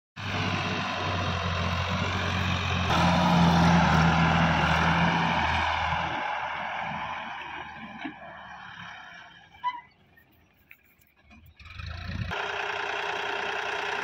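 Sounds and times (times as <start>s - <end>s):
tractor diesel engine running: 0.2s - 14.0s.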